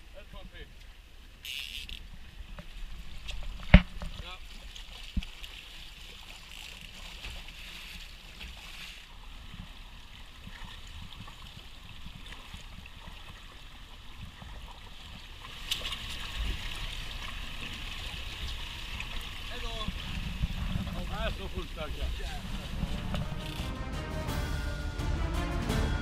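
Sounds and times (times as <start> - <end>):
water splashing against boat: 0.7 - 23.8
low steady rumble: 17.2 - 26.0.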